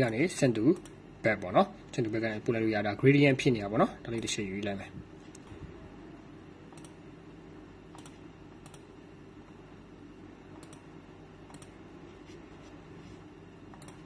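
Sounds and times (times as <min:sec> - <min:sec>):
faint low hum: 0:00.0 - 0:14.0
computer mouse clicks: 0:06.7 - 0:07.0, 0:07.9 - 0:08.9, 0:10.6 - 0:10.9, 0:11.5 - 0:11.8, 0:13.7 - 0:14.0.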